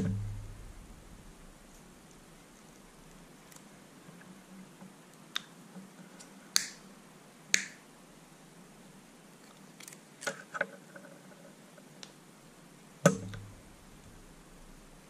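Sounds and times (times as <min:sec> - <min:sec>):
small clicks: 0:01.7 - 0:06.8, 0:09.4 - 0:11.1.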